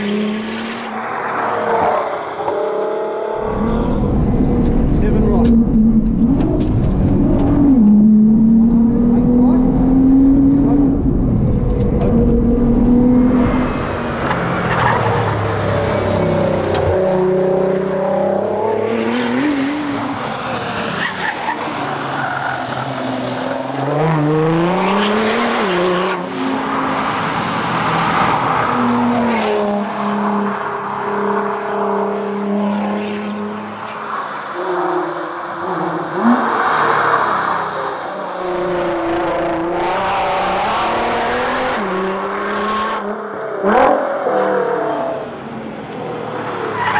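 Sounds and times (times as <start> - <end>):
car engine accelerating hard: 3.4 - 20.9.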